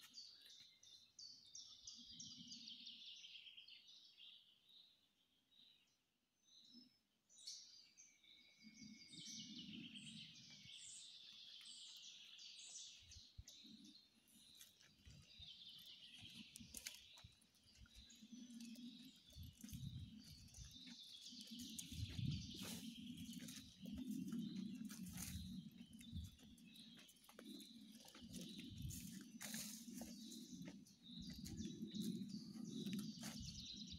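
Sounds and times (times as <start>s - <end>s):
small birds chirping: 0.0s - 6.0s, 6.6s - 33.9s
footsteps on dirt path: 11.0s - 33.9s
rustling leaves: 18.5s - 27.0s, 27.7s - 30.7s.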